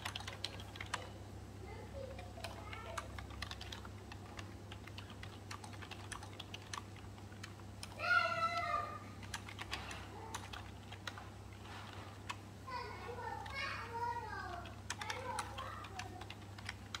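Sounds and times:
small clicks and taps: 14.4s - 17.0s.

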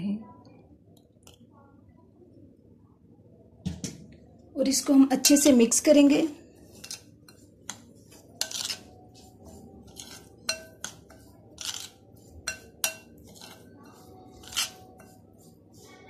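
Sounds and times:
metal spoon scraping glass bowl: 6.6s - 16.0s.

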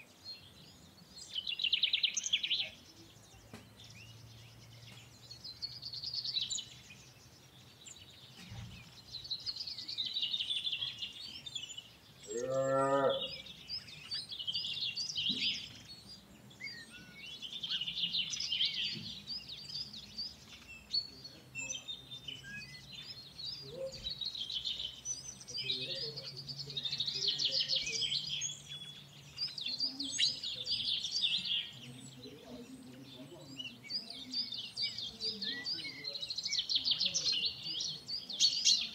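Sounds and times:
small birds chirping: 0.0s - 38.9s
cow mooing: 12.3s - 13.4s.

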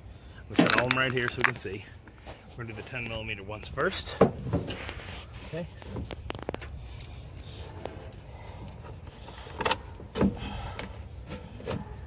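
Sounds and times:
tools clattering down: 0.5s - 1.6s.

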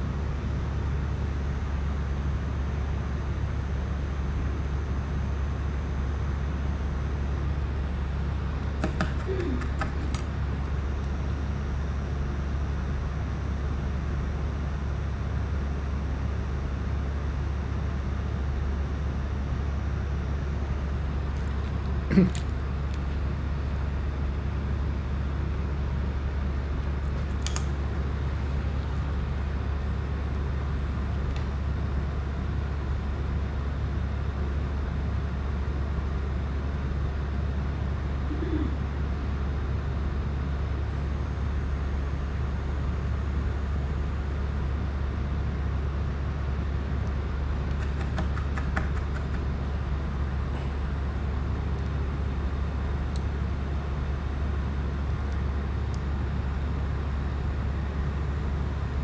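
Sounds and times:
low hum: 0.0s - 59.0s.

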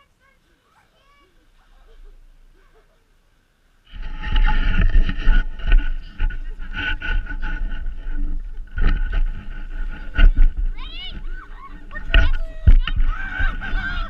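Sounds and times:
sled scraping down snow: 3.9s - 14.0s
wind buffeting microphone: 3.9s - 14.0s.

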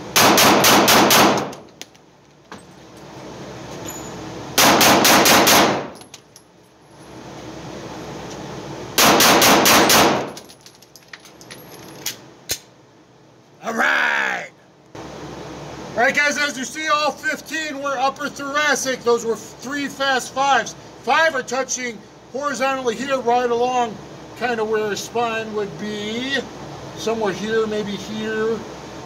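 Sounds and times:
pistol shots echoing indoors: 0.2s - 1.6s, 4.6s - 6.0s, 9.0s - 10.4s.

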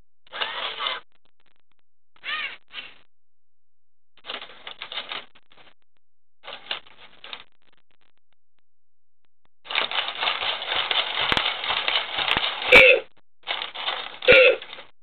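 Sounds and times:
toy robot motors whirring: 0.3s - 1.0s, 9.7s - 12.8s
plastic limbs clattering: 4.2s - 5.3s, 9.6s - 14.9s.

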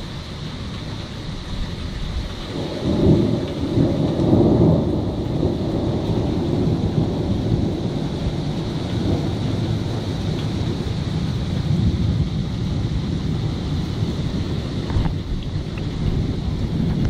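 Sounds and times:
steady rain: 0.0s - 17.0s
thunder rumbling: 1.2s - 17.0s.

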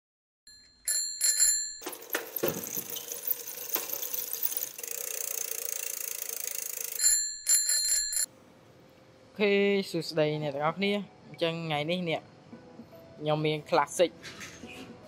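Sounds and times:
bicycle bell ringing: 0.5s - 8.3s.

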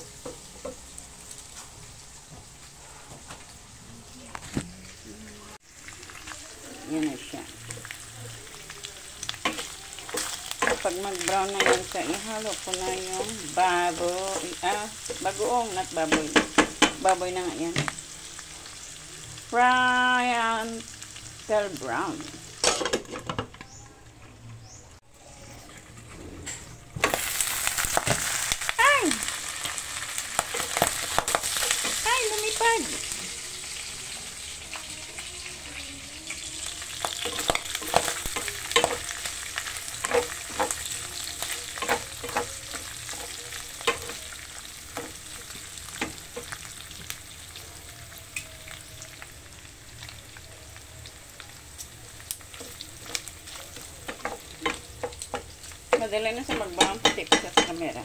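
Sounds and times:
pork fat sizzling in oil: 0.0s - 24.1s, 24.9s - 58.0s.

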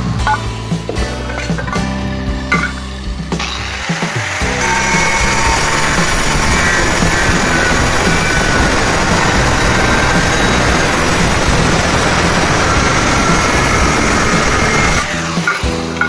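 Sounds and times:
angle grinder cutting tile: 3.4s - 16.0s.

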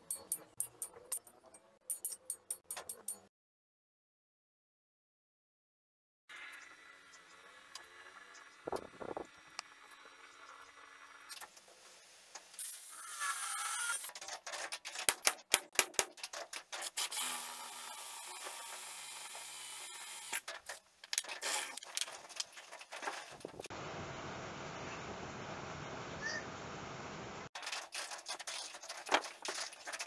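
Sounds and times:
metal pieces clicking and clattering: 20.3s - 23.5s.

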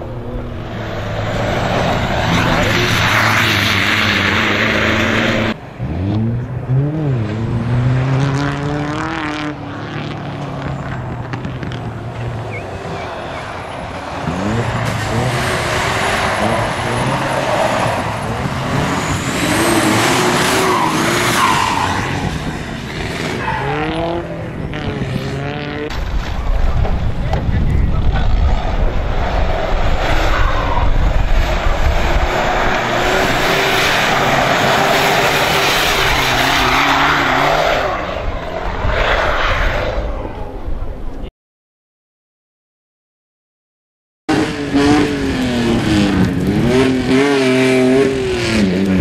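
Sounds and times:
truck engine revving: 0.0s - 26.0s, 44.3s - 49.0s.

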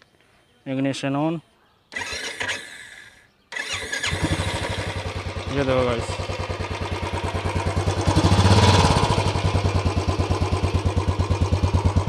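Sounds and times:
motorcycle engine idling: 3.6s - 12.0s.

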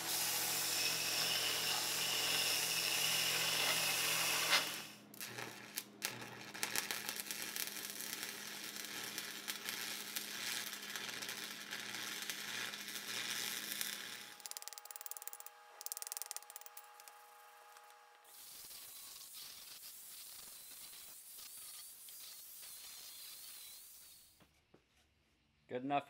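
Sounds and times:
band saw cutting steel: 0.0s - 5.0s
welding arc crackling: 0.0s - 24.4s.

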